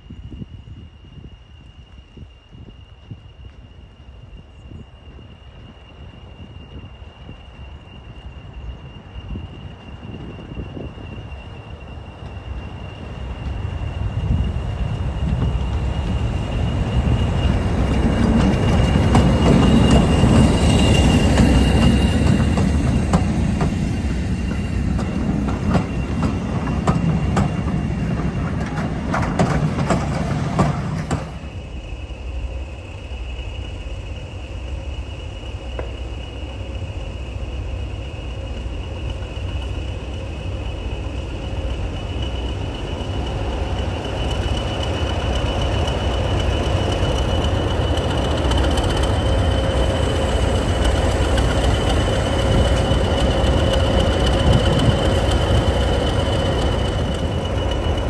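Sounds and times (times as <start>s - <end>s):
steady high whine: 0.0s - 58.0s
locomotive engine rumble: 1.6s - 58.0s
wheels clicking over rail joints: 15.2s - 31.4s, 42.6s - 58.0s.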